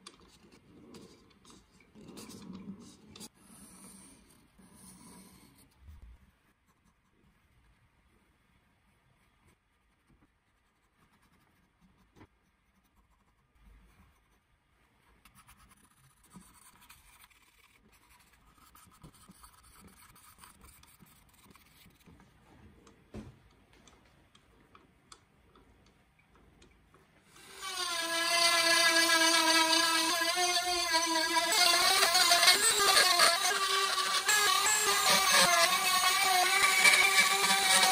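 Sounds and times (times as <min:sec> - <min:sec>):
pencil scratching on wood: 0:09.2 - 0:22.4
rotary tool high whine: 0:27.4 - 0:37.9.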